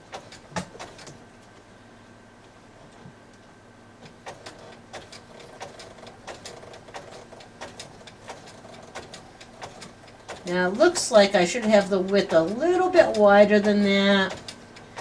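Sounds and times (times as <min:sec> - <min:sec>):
sewing machine motor hum: 0:00.0 - 0:01.2, 0:04.1 - 0:15.0.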